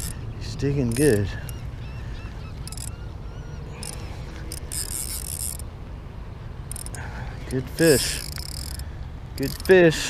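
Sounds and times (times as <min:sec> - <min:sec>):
fishing reel drag buzzing: 0:00.0 - 0:00.2, 0:00.8 - 0:01.6, 0:02.6 - 0:02.9, 0:03.8 - 0:05.7, 0:06.7 - 0:07.1, 0:07.8 - 0:09.8.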